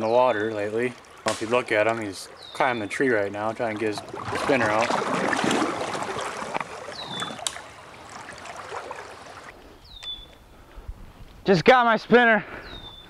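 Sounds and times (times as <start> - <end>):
creek water rushing: 0.0 - 9.6
bird whistling: 6.9 - 7.8, 9.8 - 10.4, 12.6 - 13.0.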